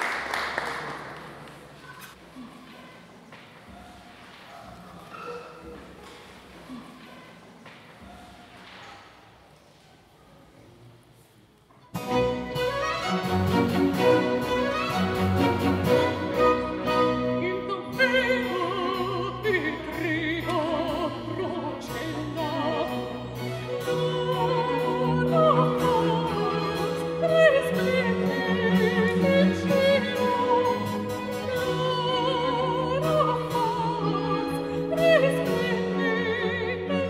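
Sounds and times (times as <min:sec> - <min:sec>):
string orchestra: 0:11.9 - 0:37.0
soprano singing: 0:12.0 - 0:37.0.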